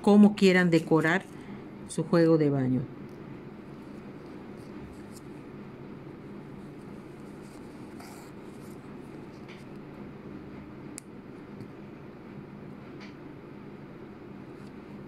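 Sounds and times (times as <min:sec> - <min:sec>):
low room hum: 0:00.0 - 0:15.0
needle and thread through fabric: 0:06.5 - 0:09.7.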